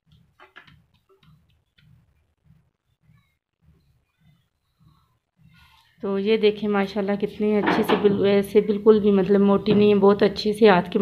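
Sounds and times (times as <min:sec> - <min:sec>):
hands patting dough: 0:00.0 - 0:05.6.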